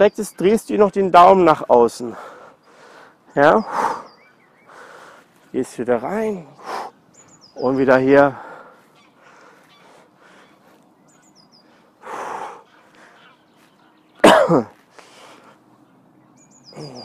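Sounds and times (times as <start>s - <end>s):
faint bird chirps: 2.3s - 5.0s, 6.1s - 8.0s, 8.8s - 14.2s, 15.4s - 17.0s
man breathing out: 11.6s - 13.3s.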